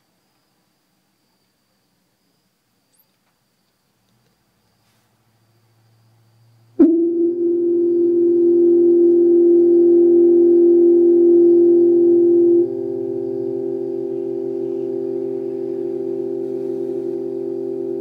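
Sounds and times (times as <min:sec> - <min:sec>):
steady electronic tone: 0:06.8 - 0:18.0.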